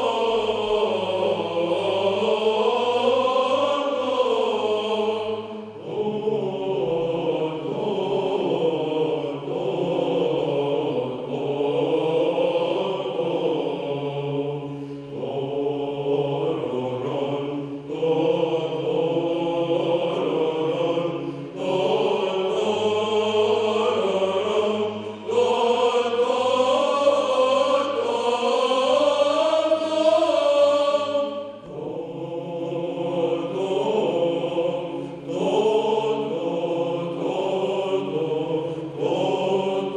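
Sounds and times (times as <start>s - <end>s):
male choir chanting unaccompanied: 0.0s - 39.9s.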